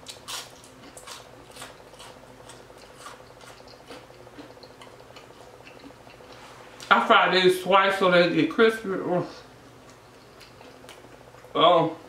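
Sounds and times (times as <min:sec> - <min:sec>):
crunching and chewing fries: 0:00.0 - 0:06.9, 0:09.6 - 0:11.6.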